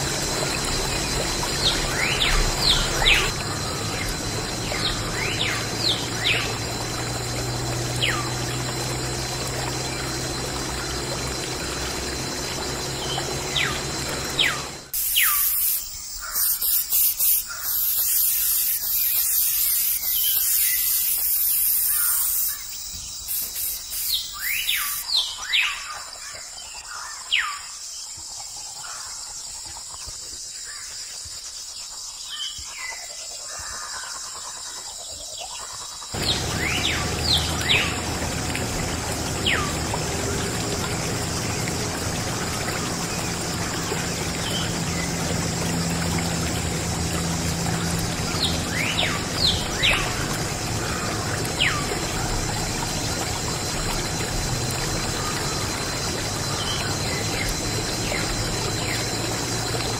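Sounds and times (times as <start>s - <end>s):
water pump spraying water: 0.0s - 25.6s, 36.1s - 59.9s
birds chirping: 36.2s - 59.9s.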